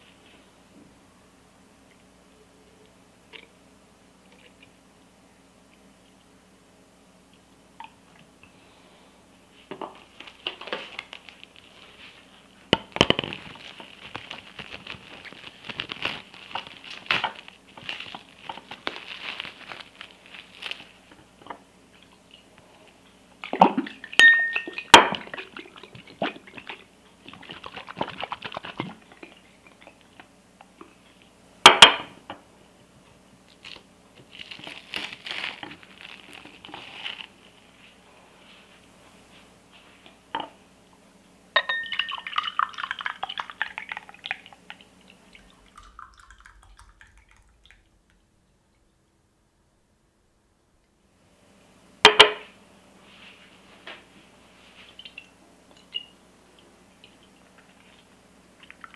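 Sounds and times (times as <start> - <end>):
plastic crinkling: 10.0 - 21.5, 33.5 - 38.0
glass bottle clinking on table: 24.2 - 25.1, 41.6 - 42.2.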